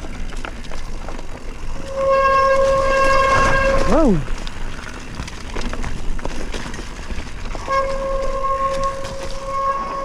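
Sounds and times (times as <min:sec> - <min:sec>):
high-pitched whine from bike: 0:00.0 - 0:06.8, 0:07.4 - 0:10.0
mountain bike rattling over rough trail: 0:00.0 - 0:10.0.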